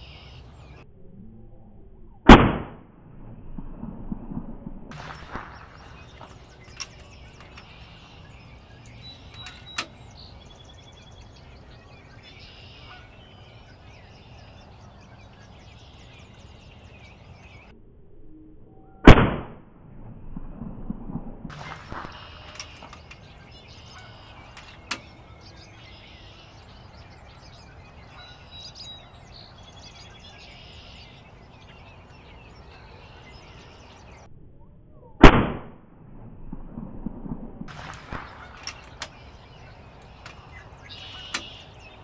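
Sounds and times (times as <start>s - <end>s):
birds singing faintly: 0.0s - 2.2s, 4.9s - 17.8s, 21.5s - 35.2s, 37.7s - 42.0s
air rifle shots: 2.3s - 2.8s, 4.9s - 8.3s, 19.1s - 19.6s, 21.5s - 26.0s, 35.2s - 35.8s, 37.7s - 42.0s
small clicks: 4.9s - 10.4s, 21.5s - 25.5s, 37.7s - 41.8s.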